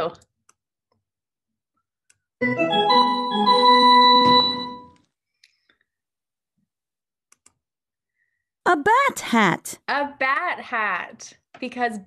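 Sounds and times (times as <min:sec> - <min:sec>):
faint mouse clicks: 0:07.3 - 0:07.6.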